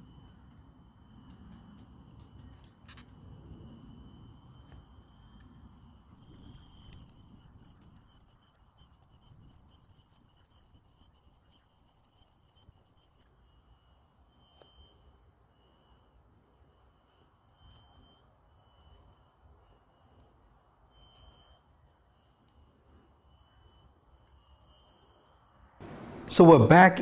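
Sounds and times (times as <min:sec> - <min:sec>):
insects trilling: 0:00.0 - 0:26.5.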